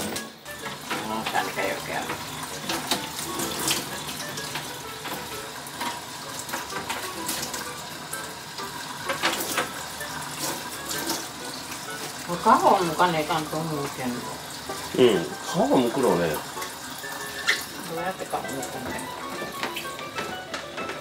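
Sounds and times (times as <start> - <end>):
tap running into metal sink: 0.0 - 14.9, 15.8 - 21.0.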